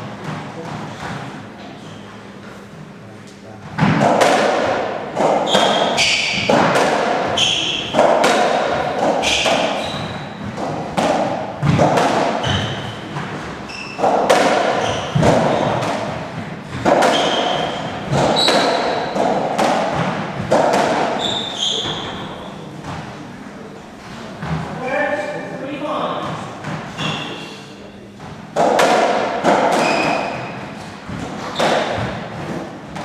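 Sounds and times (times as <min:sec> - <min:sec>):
ball hitting racket and walls: 0:00.0 - 0:02.0, 0:03.6 - 0:23.2, 0:24.0 - 0:27.4, 0:28.2 - 0:33.0
shoes squeaking on wooden floor: 0:05.4 - 0:06.6, 0:07.2 - 0:08.0, 0:09.1 - 0:10.6, 0:12.4 - 0:15.8, 0:16.7 - 0:19.2, 0:21.1 - 0:22.6, 0:26.8 - 0:27.5, 0:29.8 - 0:32.6.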